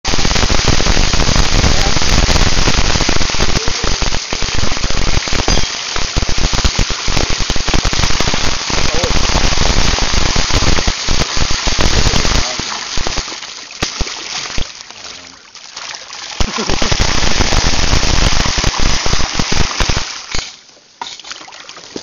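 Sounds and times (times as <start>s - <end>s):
fish splashing at water surface: 8.5s - 20.6s.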